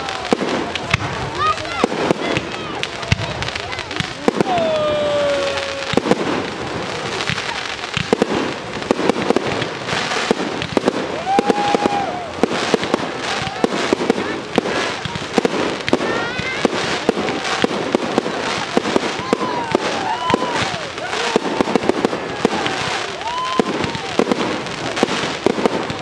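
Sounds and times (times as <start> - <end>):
fireworks bangs and crackling: 0.0 - 26.0.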